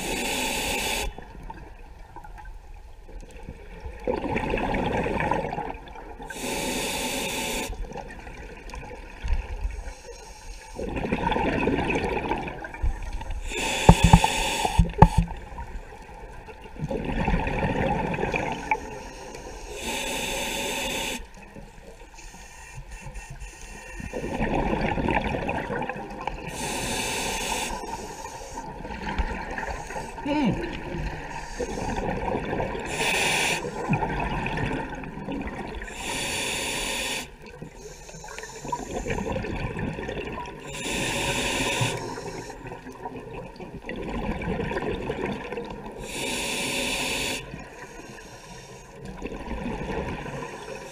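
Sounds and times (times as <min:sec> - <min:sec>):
regulator hiss on inhale: 0:00.0 - 0:01.3, 0:06.3 - 0:07.9, 0:09.7 - 0:10.8, 0:13.1 - 0:15.3, 0:18.6 - 0:24.4, 0:26.5 - 0:28.8, 0:29.6 - 0:30.3, 0:31.1 - 0:32.2, 0:32.8 - 0:33.9, 0:35.8 - 0:39.4, 0:40.7 - 0:42.8, 0:46.0 - 0:49.1, 0:50.4 - 0:50.9
bubbles rushing on exhale: 0:10.8 - 0:12.8, 0:16.8 - 0:18.7, 0:24.3 - 0:26.5.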